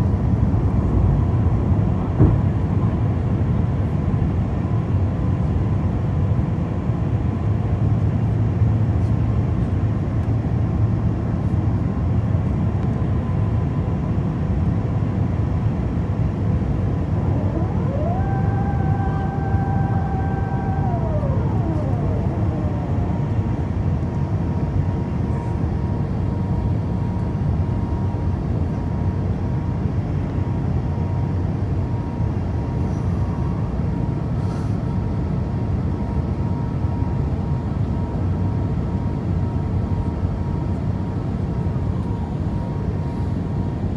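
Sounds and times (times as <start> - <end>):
mechanical whine: 15.1 - 43.9
airliner cabin rumble: 15.8 - 31.2.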